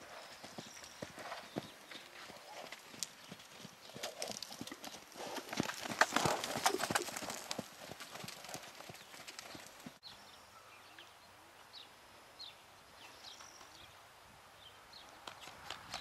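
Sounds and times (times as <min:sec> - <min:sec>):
small birds chirping: 0:00.0 - 0:05.2, 0:06.2 - 0:14.0
horse hooves cantering on sand: 0:00.0 - 0:10.0.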